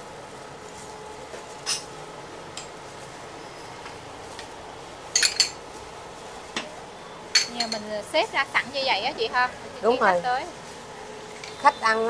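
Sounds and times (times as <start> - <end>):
dishes clinking on metal tray: 1.6 - 1.9, 5.2 - 5.6, 7.3 - 7.9.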